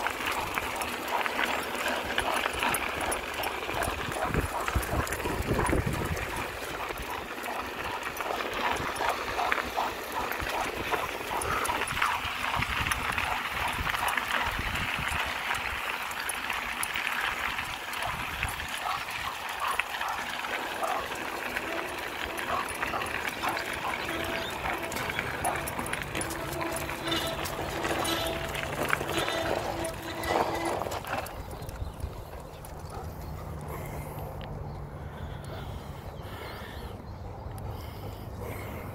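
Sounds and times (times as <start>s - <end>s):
dogs crying: 0.0s - 15.4s, 17.9s - 31.6s.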